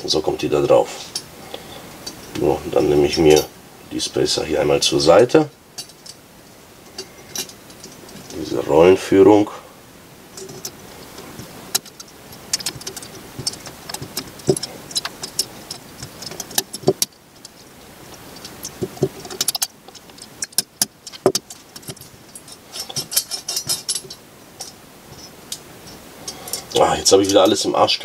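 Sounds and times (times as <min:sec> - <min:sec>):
small metal parts clicking and rattling: 0:05.8 - 0:06.2, 0:06.9 - 0:08.4, 0:10.3 - 0:27.6
metal parts jangling: 0:07.0 - 0:08.3, 0:18.4 - 0:25.4.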